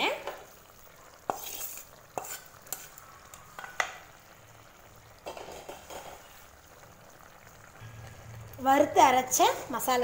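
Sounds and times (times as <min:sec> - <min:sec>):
faint sizzle: 0:00.0 - 0:10.0
spoon stirring gravy: 0:00.6 - 0:04.0.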